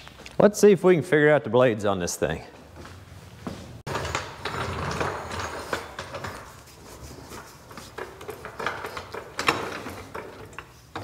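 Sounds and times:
floor jack clanking and clicking: 3.9 - 6.6, 7.3 - 11.0.

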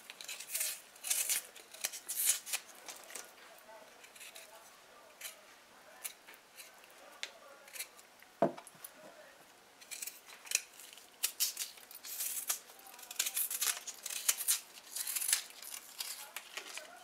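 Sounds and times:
knife scraping root skin: 0.0 - 3.3, 4.0 - 4.6, 5.2 - 5.4, 7.6 - 8.0, 9.8 - 17.0.

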